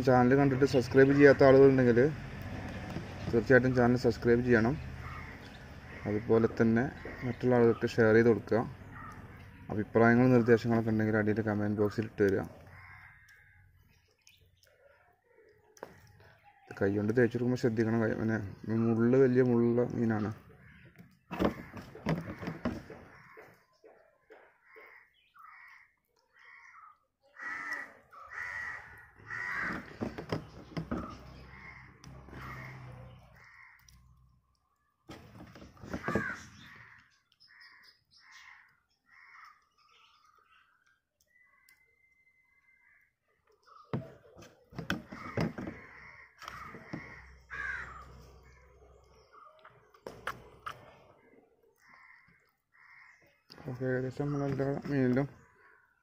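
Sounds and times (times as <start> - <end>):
crows cawing: 4.8 - 14.0, 20.2 - 34.6, 35.5 - 53.7, 55.2 - 56.0.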